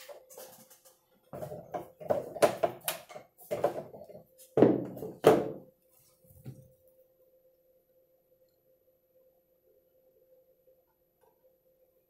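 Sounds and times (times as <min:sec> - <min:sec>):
wooden parts knocking and tapping: 0:01.4 - 0:04.0.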